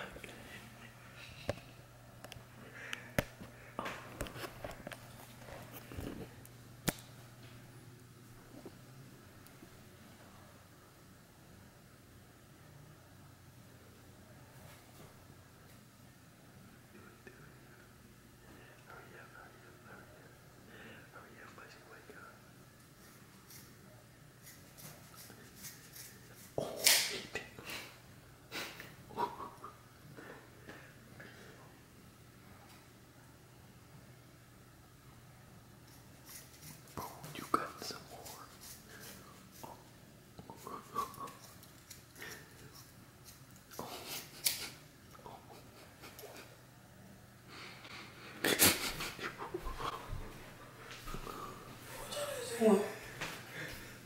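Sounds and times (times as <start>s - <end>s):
soft footsteps: 49.6s - 52.0s
stifled human laughter: 51.8s - 53.8s.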